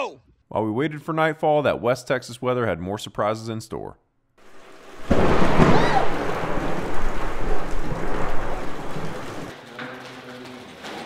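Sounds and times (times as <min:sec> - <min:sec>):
thunder rumbling: 0:04.4 - 0:09.5
heavy rain: 0:04.4 - 0:09.6.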